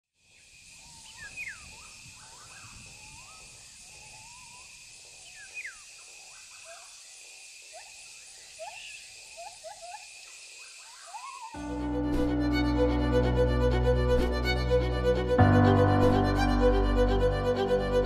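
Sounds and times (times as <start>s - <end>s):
high insect drone: 0.2s - 18.0s.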